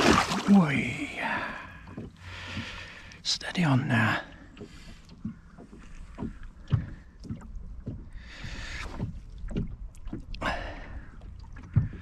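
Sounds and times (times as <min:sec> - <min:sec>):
gear knocking and thudding in boat: 0:00.0 - 0:12.0.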